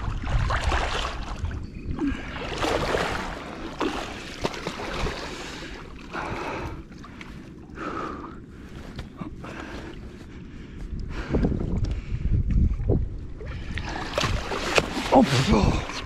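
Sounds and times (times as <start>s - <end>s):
fish splashing water: 2.4s - 6.0s.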